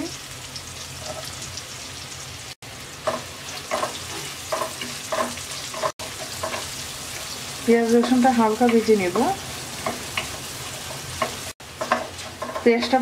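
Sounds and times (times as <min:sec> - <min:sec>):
onions sizzling in oil: 0:00.0 - 0:13.0.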